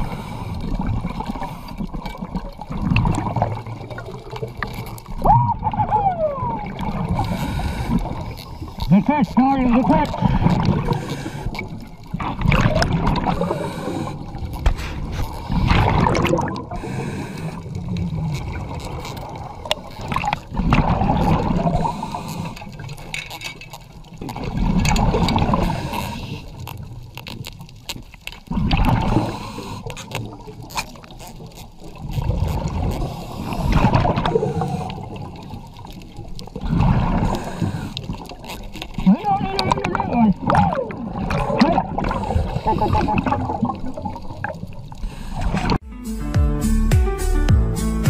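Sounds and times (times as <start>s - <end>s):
muffled underwater gurgling: 0.0s - 22.8s, 32.0s - 45.8s.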